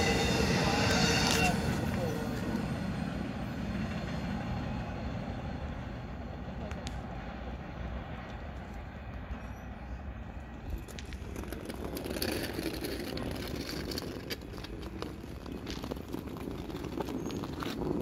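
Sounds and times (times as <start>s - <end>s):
freight train rumble: 0.0s - 18.0s
footsteps on gravel: 10.6s - 18.0s.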